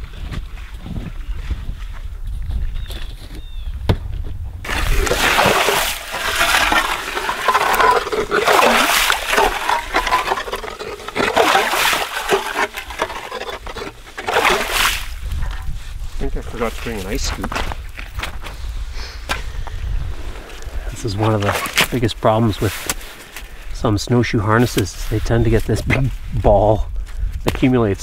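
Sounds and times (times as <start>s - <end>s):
ice auger crunching ice: 4.7s - 15.4s
slush and water splashing: 4.7s - 15.4s.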